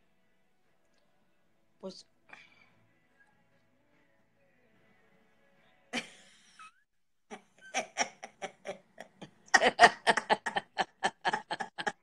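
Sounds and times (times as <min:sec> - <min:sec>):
women laughing: 0:07.3 - 0:12.0.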